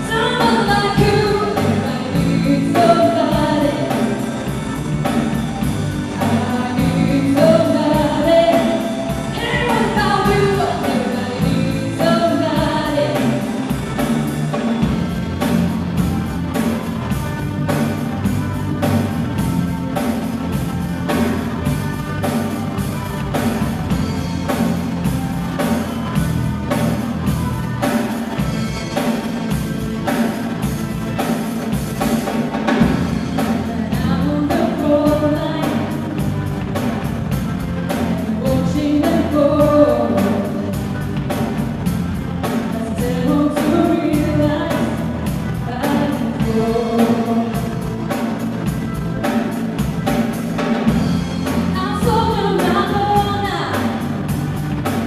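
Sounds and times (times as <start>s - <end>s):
woman singing into a microphone: 0.0s - 4.3s, 6.1s - 13.5s, 33.4s - 36.3s, 38.2s - 41.0s, 42.5s - 48.0s, 51.8s - 54.0s
drum kit: 0.0s - 55.0s
electric guitar: 0.0s - 55.0s
keyboards: 0.0s - 55.0s.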